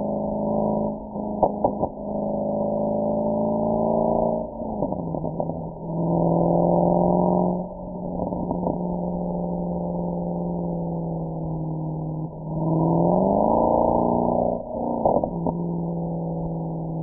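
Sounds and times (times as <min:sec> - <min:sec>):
car exhaust note: 0:00.0 - 0:17.0
exhaust pops: 0:01.4 - 0:02.0, 0:08.2 - 0:09.0.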